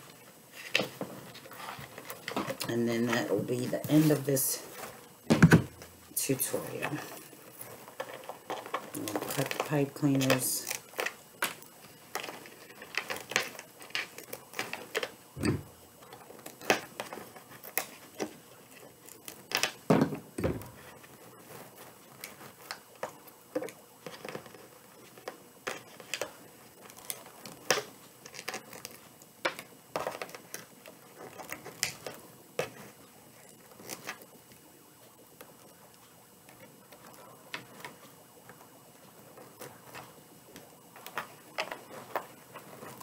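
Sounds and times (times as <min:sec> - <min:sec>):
dull thumps: 0:05.2 - 0:06.0, 0:15.4 - 0:15.8, 0:19.9 - 0:20.8.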